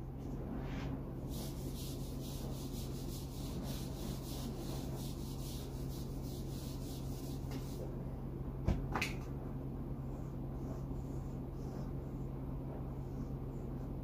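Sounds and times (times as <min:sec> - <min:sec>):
eraser scraping whiteboard: 0:00.7 - 0:07.9.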